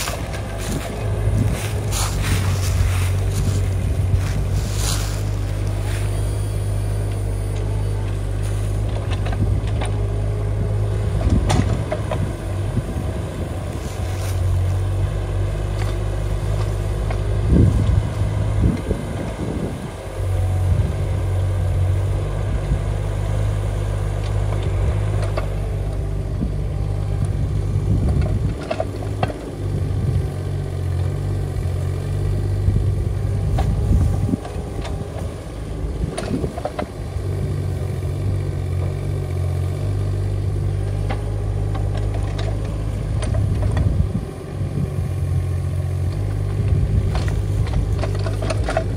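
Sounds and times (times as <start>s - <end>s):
bucket knocking and scraping soil: 0.0s - 6.1s
excavator diesel engine running: 0.0s - 48.9s.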